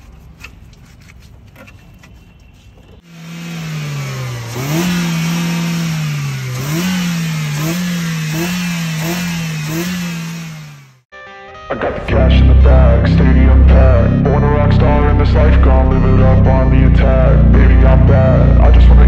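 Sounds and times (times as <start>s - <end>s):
car engine revving: 3.0s - 11.1s.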